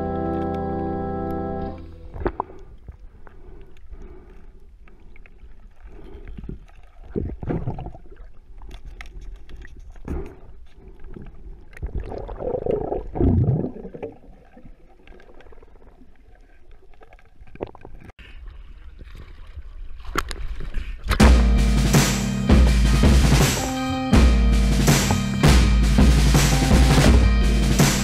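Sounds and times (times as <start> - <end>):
muffled underwater sloshing: 1.8 - 21.2
bubbles gurgling: 7.0 - 8.5, 11.8 - 18.1
water splash: 11.8 - 18.1.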